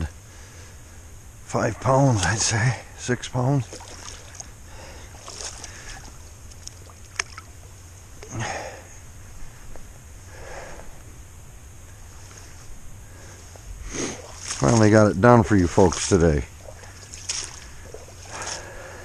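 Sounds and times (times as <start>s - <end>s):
low background noise: 0.0s - 19.0s
water sloshing and splashing: 1.8s - 8.4s, 13.4s - 19.0s.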